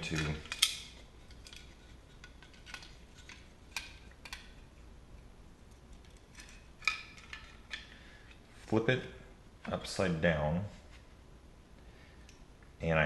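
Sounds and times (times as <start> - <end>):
clicks of small parts handled: 0.0 - 4.6.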